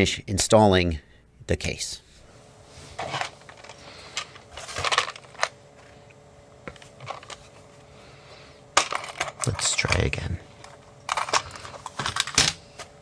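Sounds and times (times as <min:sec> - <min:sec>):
small parts clicking and rattling: 0:03.1 - 0:05.6, 0:08.8 - 0:12.9.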